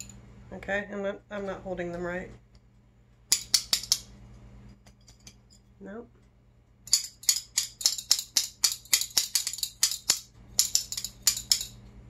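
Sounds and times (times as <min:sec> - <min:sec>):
metal spoons clacking: 0:06.9 - 0:11.9.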